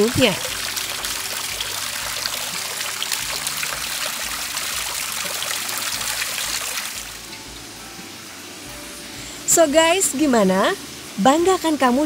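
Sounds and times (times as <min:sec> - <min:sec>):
fountain water splashing into pool: 0:00.0 - 0:07.3.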